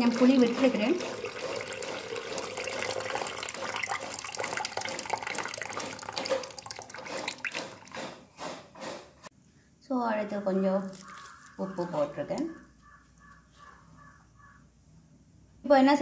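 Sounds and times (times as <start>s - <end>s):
water dripping: 0.0s - 7.9s, 10.9s - 11.6s
water pouring into a pan: 0.0s - 7.9s.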